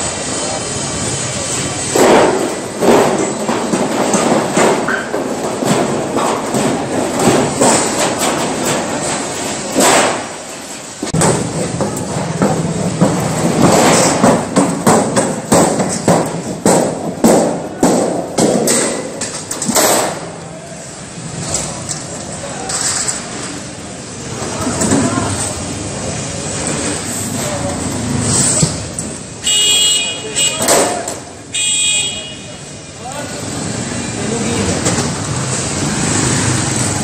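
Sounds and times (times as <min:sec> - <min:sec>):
steel sheet thumping and clattering: 0:01.9 - 0:20.4.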